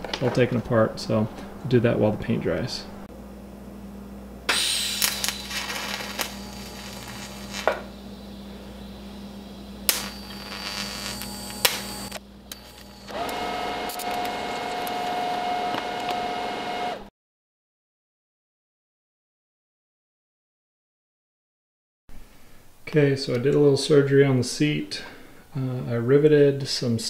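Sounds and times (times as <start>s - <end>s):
small power tool motor running: 4.5s - 17.1s
sharp snaps: 9.9s - 10.3s, 11.2s - 12.6s.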